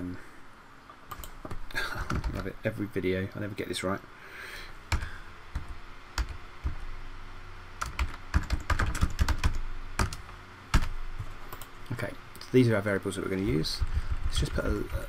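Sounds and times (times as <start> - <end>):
computer fan hum: 0.0 - 15.0
keyboard typing clicks: 1.1 - 2.5, 11.5 - 11.7.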